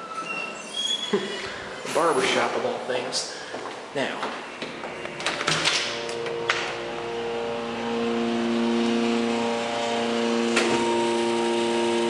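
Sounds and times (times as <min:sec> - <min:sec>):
elevator pump motor hum: 0:04.8 - 0:12.0.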